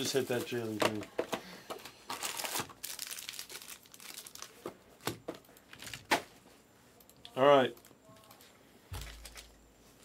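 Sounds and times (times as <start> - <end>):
foil wrappers crinkling: 1.8 - 4.6.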